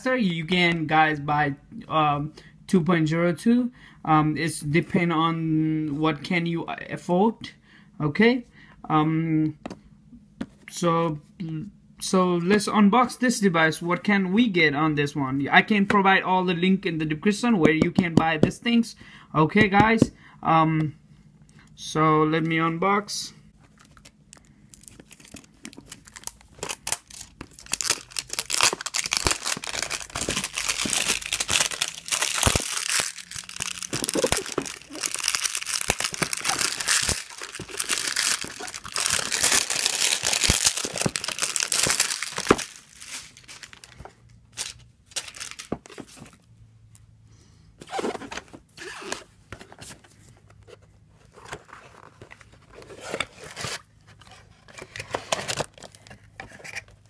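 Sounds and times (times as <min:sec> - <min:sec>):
plastic wrap crinkling and tearing: 0:23.8 - 0:44.0, 0:44.6 - 0:46.1.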